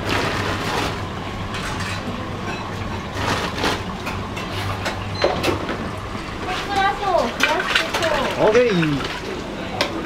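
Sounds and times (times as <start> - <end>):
water at rolling boil: 0.0 - 10.0.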